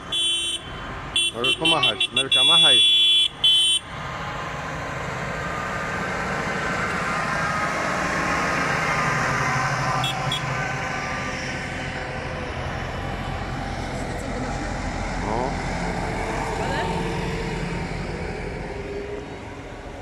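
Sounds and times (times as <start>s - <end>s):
tractor diesel engine passing: 0.0s - 20.0s
horn blasts: 0.1s - 3.9s, 9.6s - 10.7s.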